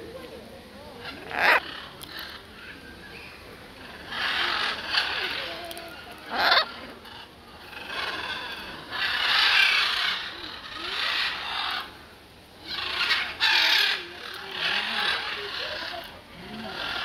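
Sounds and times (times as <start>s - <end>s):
macaw squawking: 1.2s - 2.2s, 6.3s - 6.7s.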